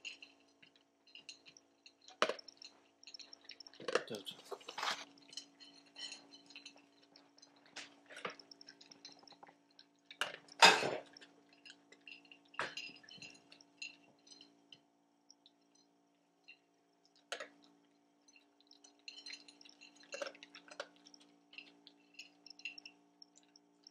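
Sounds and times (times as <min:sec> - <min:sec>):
food clinking against plate: 0:01.1 - 0:06.9, 0:10.2 - 0:14.5
dog crunching dry kibble: 0:01.4 - 0:05.1.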